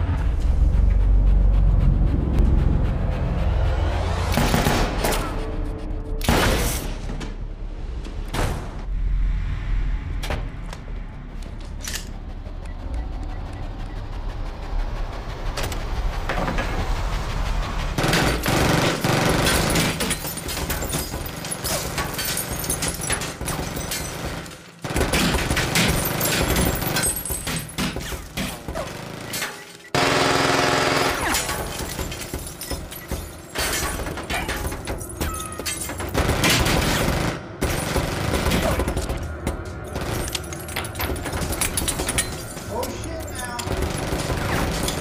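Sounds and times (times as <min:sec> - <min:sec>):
rapid gunfire: 0:17.9 - 0:22.2, 0:23.0 - 0:27.0, 0:27.9 - 0:33.3, 0:36.0 - 0:39.3, 0:43.7 - 0:45.0.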